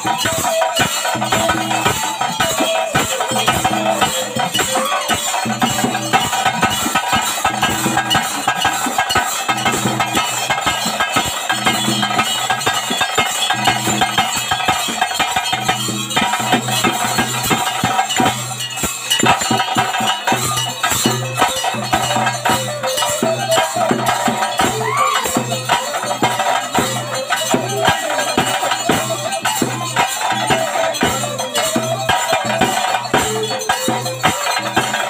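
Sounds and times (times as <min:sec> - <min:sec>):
drums in fast rhythm: 0:00.0 - 0:35.0
held high tone: 0:00.0 - 0:35.0.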